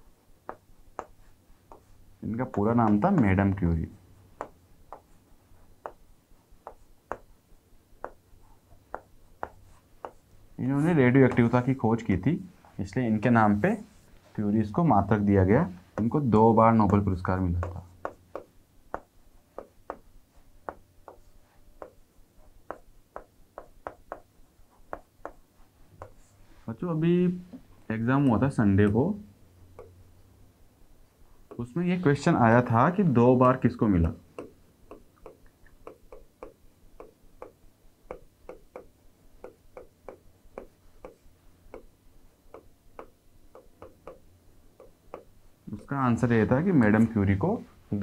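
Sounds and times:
stylus tapping on screen: 0.4s - 3.6s, 4.3s - 7.4s, 8.0s - 10.4s, 15.1s - 26.3s, 27.4s - 30.2s, 31.4s - 46.0s
stylus tapping on glass: 34.4s - 41.9s.

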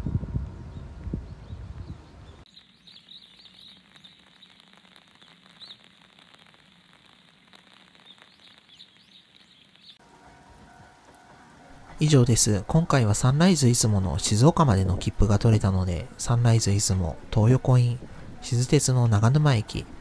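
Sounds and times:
low rumbling noise: 0.0s - 2.4s
small birds chirping: 0.6s - 10.0s.

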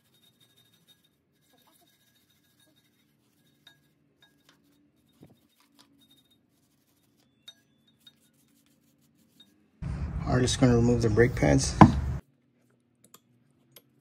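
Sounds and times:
wire brush scratching metal: 0.0s - 9.8s.

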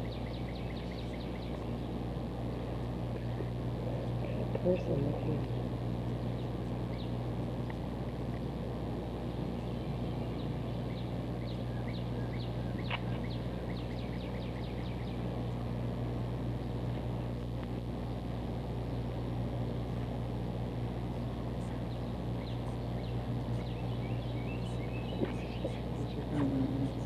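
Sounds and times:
city street hum: 0.0s - 27.0s
small birds chirping: 0.0s - 27.0s.

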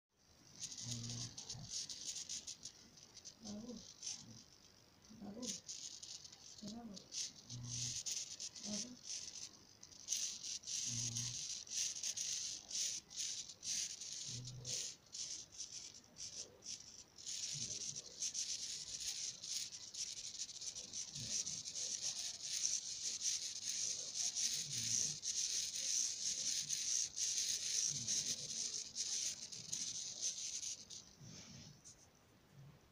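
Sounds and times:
servo motors whirring: 0.6s - 2.6s, 5.2s - 16.4s, 17.2s - 31.0s.

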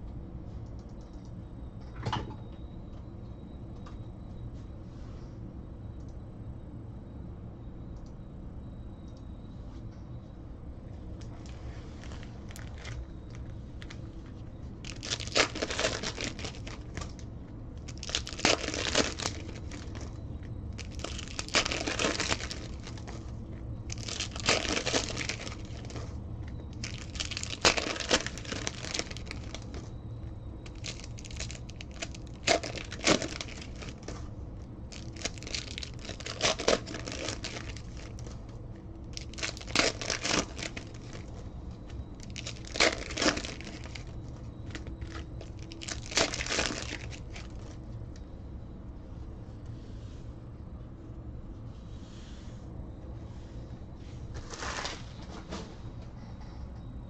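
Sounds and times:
foil wrappers tearing and crinkling: 12.0s - 13.0s, 14.8s - 17.2s, 17.8s - 20.2s, 20.8s - 23.3s, 23.9s - 26.1s, 26.7s - 29.9s, 30.6s - 34.2s, 34.9s - 38.3s, 39.1s - 41.4s, 42.2s - 47.8s, 54.5s - 55.0s.

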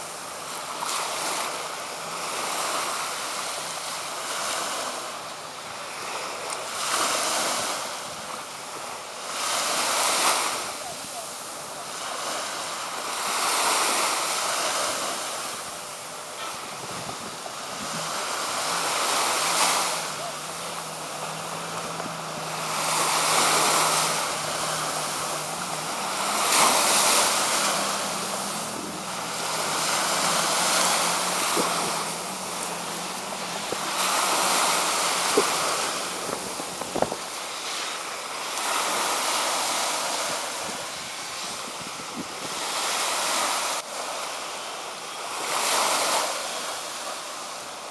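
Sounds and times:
faint low engine hum: 0.0s - 39.0s
small waves washing on shore: 0.0s - 47.9s
wind buffeting microphone: 16.6s - 18.2s, 20.8s - 37.4s.

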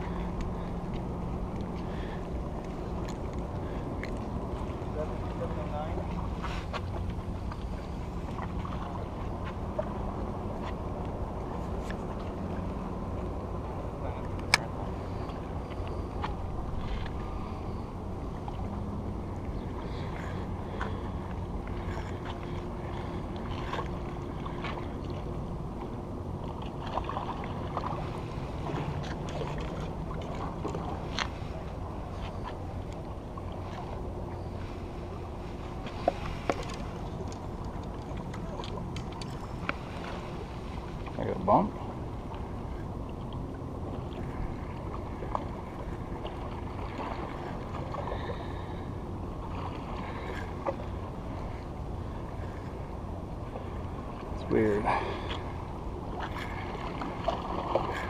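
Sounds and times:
water noise: 0.0s - 58.0s
wind rumble on microphone: 0.0s - 58.0s
fishing rod and reel clicks: 14.2s - 14.7s.

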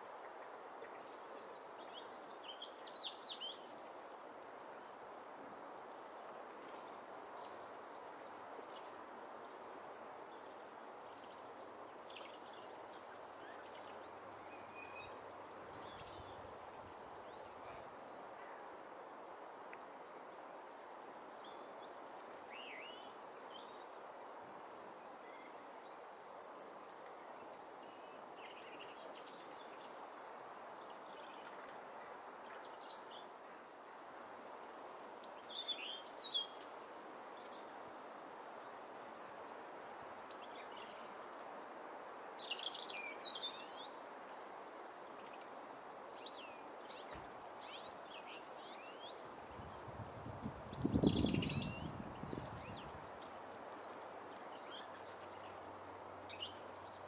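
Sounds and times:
small birds chirping: 40.2s - 44.4s, 45.0s - 57.0s.

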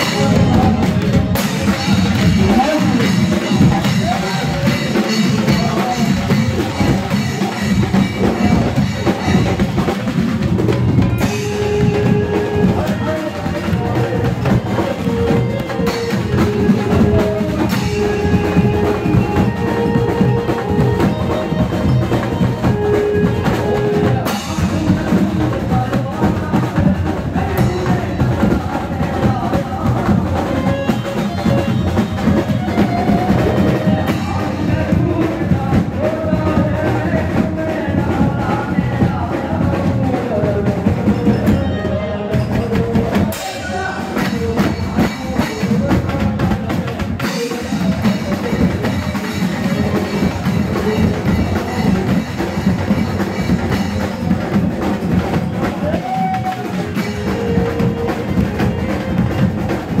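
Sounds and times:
drums and percussion dance rhythm: 0.0s - 60.0s
man singing into microphone: 0.0s - 60.0s.

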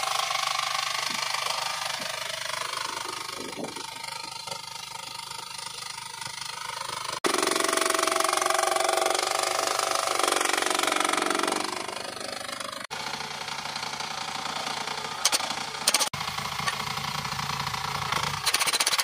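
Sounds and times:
excavator engine and hydraulics: 0.0s - 19.0s
hydraulic breaker striking rock: 18.2s - 19.0s.

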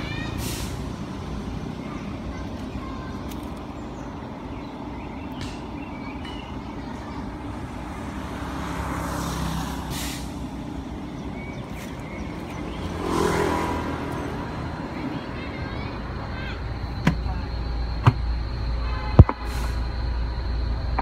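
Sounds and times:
diesel engine idling: 0.0s - 21.0s
air hiss: 0.2s - 1.0s, 9.7s - 10.5s, 19.3s - 20.0s.

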